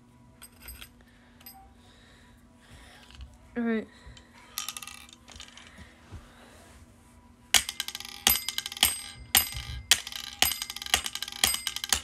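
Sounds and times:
toy hammer metallic clinks: 0:00.4 - 0:01.6, 0:07.6 - 0:12.0.

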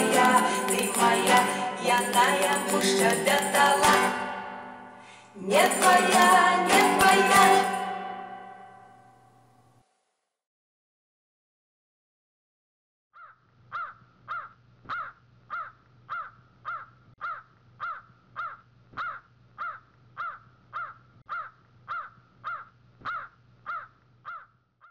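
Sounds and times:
crow calling: 0:13.2 - 0:24.9.

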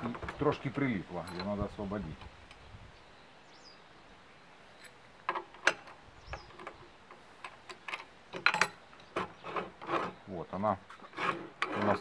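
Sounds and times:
metal bar clicking and knocking: 0:05.3 - 0:10.1.

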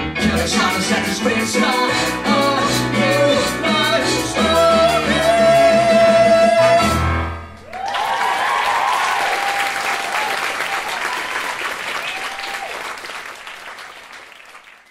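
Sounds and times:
whoops of cheering: 0:07.6 - 0:13.0
audience applauding: 0:07.6 - 0:14.9.

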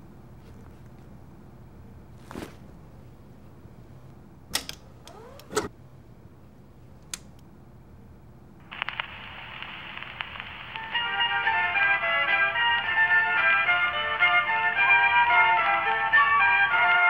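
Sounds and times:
record knocking and sliding: 0:04.6 - 0:05.7
vinyl hiss and crackle: 0:08.6 - 0:17.0
folk tune from a record: 0:08.7 - 0:17.0.

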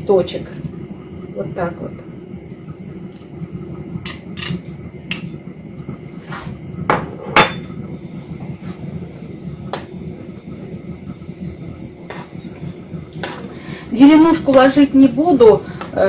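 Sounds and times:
steady low hum: 0:00.0 - 0:16.0
metal spoon clinking on dish: 0:04.1 - 0:05.3.

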